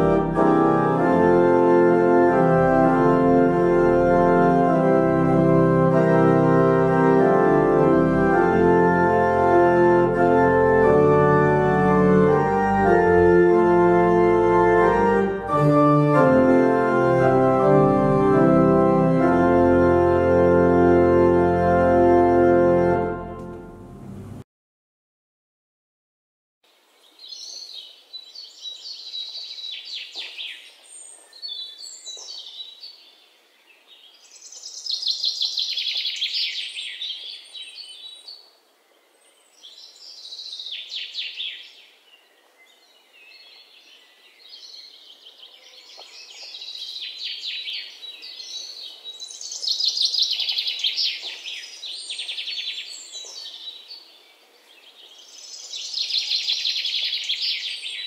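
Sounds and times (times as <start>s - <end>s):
birds chirping and twittering: 26.9s - 58.0s.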